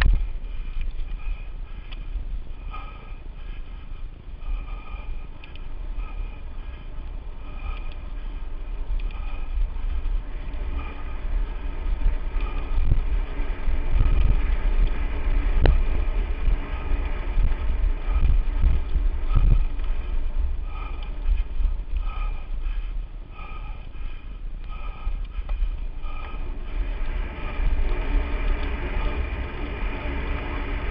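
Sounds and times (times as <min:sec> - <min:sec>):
wind on microphone: 0:04.0 - 0:30.9
mountain bike rattling and thudding: 0:05.4 - 0:23.3.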